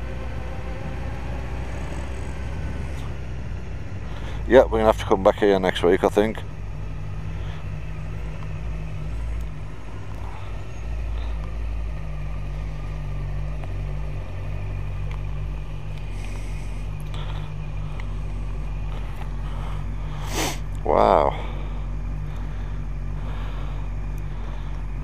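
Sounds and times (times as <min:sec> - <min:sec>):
motorcycle engine idling: 0:00.0 - 0:25.0.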